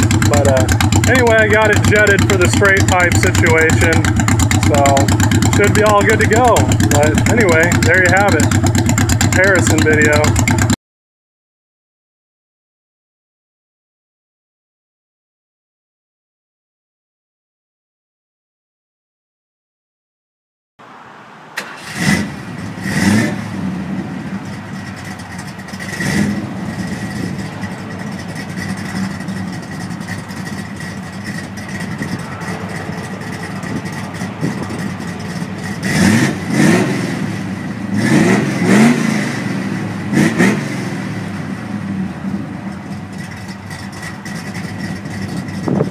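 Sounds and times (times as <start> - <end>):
car engine idling: 0.0 - 10.8, 20.8 - 45.9
engine revving: 0.0 - 10.8, 21.6 - 45.9.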